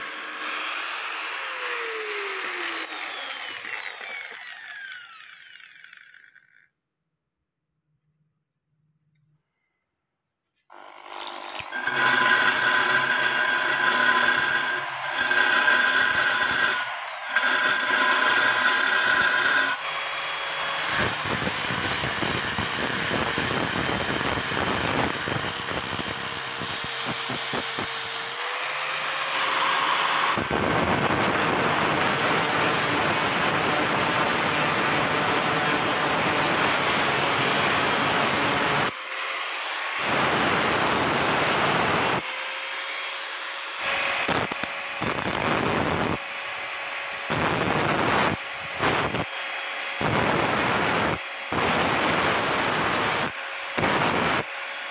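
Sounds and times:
angle grinder grinding metal: 0.0 - 6.6, 10.7 - 46.6.

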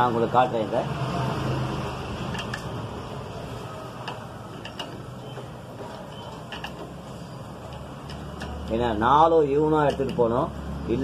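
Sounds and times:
steady background noise: 0.0 - 11.0
socket wrench clicking: 4.0 - 5.1, 6.3 - 7.0.

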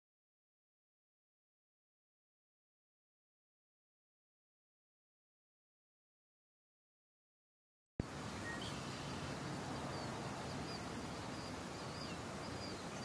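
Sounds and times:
steady outdoor hiss: 8.0 - 13.0
high bird chirps: 8.4 - 9.2.

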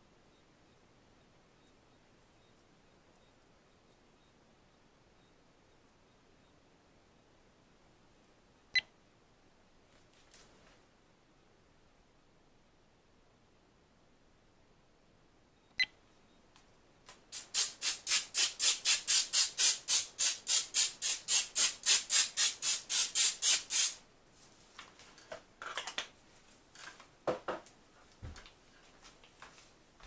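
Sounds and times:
aerosol spray hissing in pulses: 17.3 - 24.0.

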